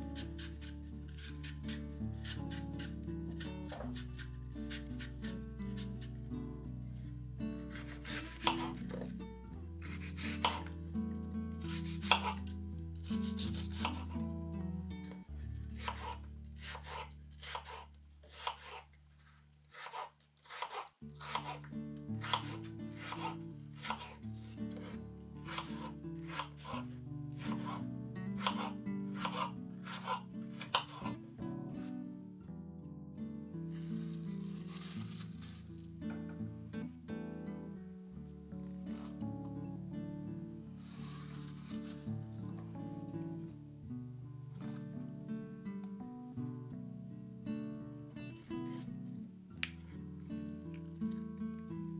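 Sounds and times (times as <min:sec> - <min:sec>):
background music: 0:00.0 - 0:17.6, 0:21.2 - 0:49.2
knife chopping on wooden board: 0:07.7 - 0:09.1, 0:09.9 - 0:10.7, 0:11.7 - 0:12.4, 0:13.3 - 0:14.1, 0:15.8 - 0:18.8, 0:19.7 - 0:21.6, 0:22.2 - 0:24.2, 0:24.8 - 0:26.8, 0:27.4 - 0:27.8, 0:28.4 - 0:31.1.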